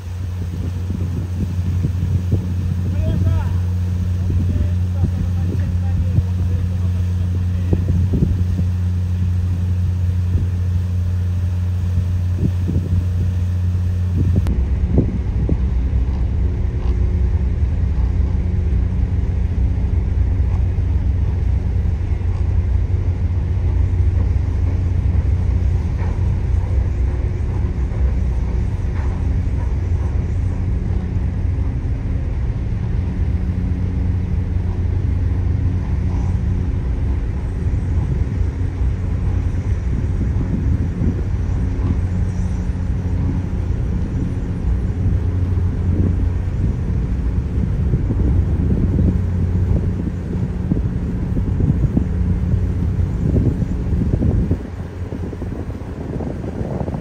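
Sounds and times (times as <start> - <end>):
deep ship engine rumble: 0.0 - 57.0
ship diesel engines humming: 0.0 - 57.0.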